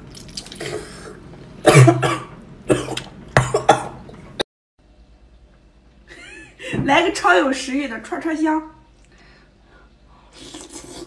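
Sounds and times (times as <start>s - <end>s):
woman coughing: 1.6s - 4.0s.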